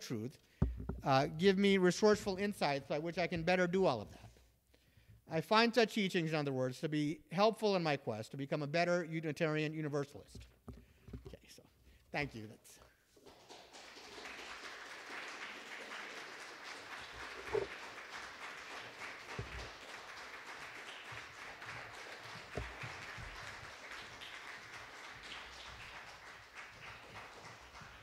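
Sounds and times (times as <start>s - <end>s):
dull thumps: 0.6s - 1.2s
audience applauding: 13.2s - 28.0s.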